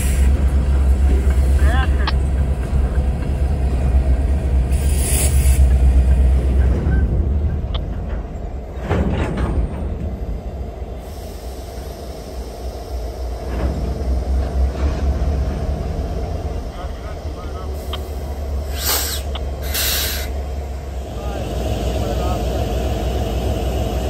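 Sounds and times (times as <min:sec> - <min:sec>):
locomotives rumbling: 0:00.0 - 0:24.0
brief hiss: 0:18.6 - 0:20.4.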